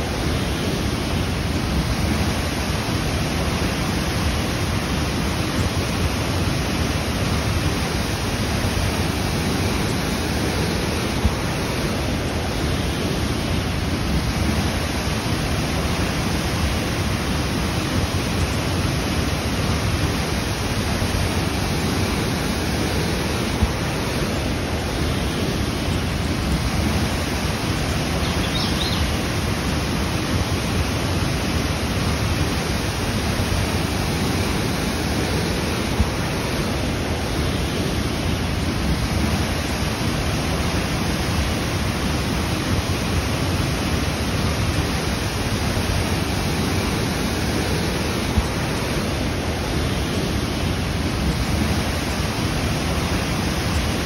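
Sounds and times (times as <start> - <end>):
waterfall roar: 0.0 - 54.0.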